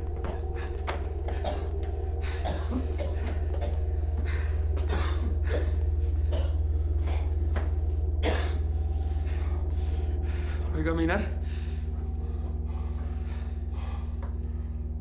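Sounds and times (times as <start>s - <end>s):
low steady hum: 0.0s - 15.0s
man gasping breaths: 0.1s - 15.0s
man coughing: 2.3s - 3.9s, 4.8s - 7.3s, 8.2s - 8.7s.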